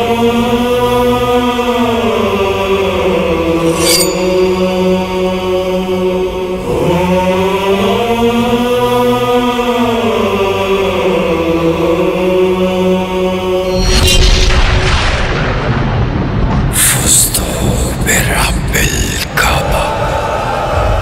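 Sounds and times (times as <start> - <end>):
voices chanting: 0.0 - 13.8, 19.3 - 21.0.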